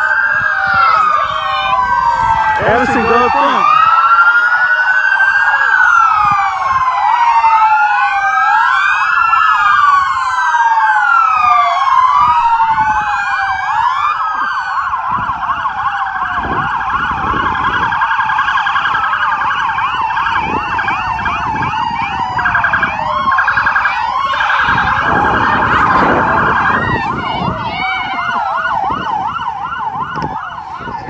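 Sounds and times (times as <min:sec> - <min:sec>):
police sirens yelping and wailing: 0:00.0 - 0:31.0.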